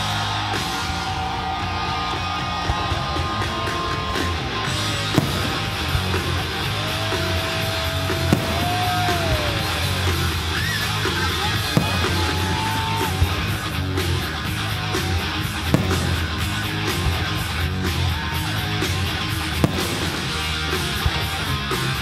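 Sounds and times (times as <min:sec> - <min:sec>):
electric guitar rock music: 0:00.0 - 0:22.0
sharp bangs: 0:04.6 - 0:22.0.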